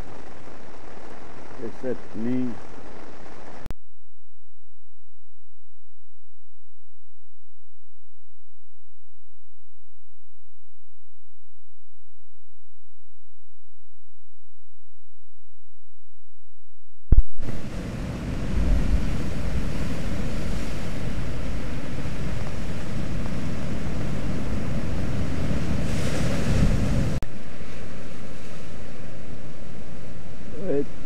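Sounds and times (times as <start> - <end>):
wind buffeting microphone: 17.4 - 27.2
surf crashing on rocks: 17.5 - 29.2.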